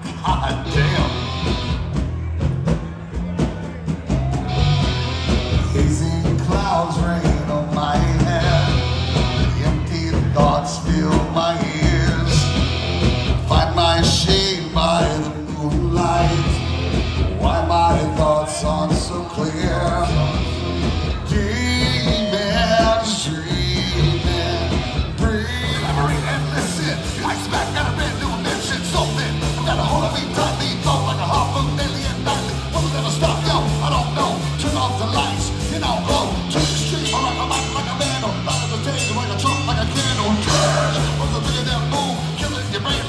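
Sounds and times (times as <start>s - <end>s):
man singing: 0.0s - 1.5s, 5.5s - 12.7s, 13.4s - 43.0s
bass guitar: 0.0s - 43.0s
drums: 0.0s - 43.0s
electric guitar: 0.0s - 43.0s.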